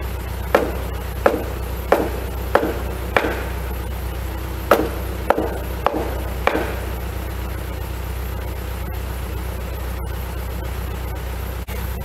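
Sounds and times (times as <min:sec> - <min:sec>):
steady low rumble: 0:00.0 - 0:12.0
hammer knocking timber beam: 0:00.5 - 0:07.8.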